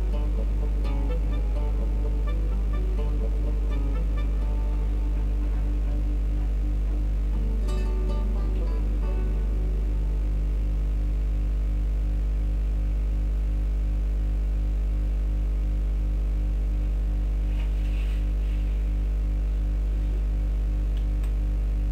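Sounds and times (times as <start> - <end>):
music: 0.0 - 11.8
electrical hum: 0.0 - 21.9
faint static hiss: 0.0 - 21.9.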